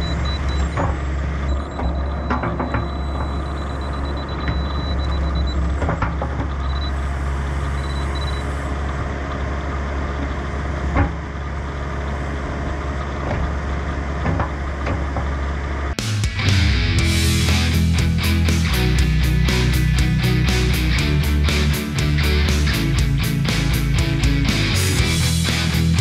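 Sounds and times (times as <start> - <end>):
laser level high tone and beeps: 0.0 - 5.6, 6.6 - 7.0, 7.6 - 8.5
diesel engine running: 0.0 - 26.0.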